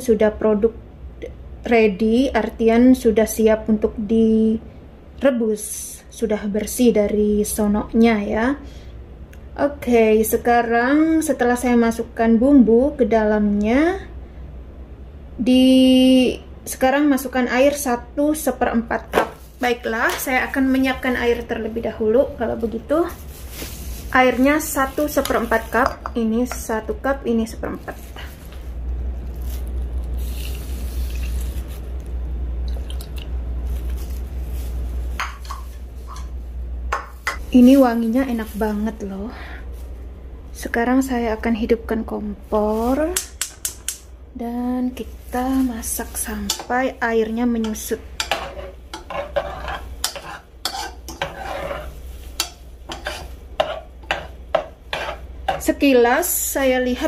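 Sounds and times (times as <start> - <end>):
spoon scraping a saucepan: 47.6 - 55.8.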